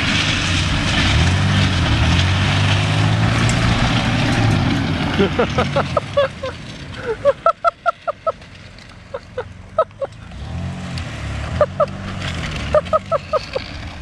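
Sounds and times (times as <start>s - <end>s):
van engine: 0.0s - 14.0s
short pitched calls: 11.6s - 12.0s, 12.7s - 13.7s.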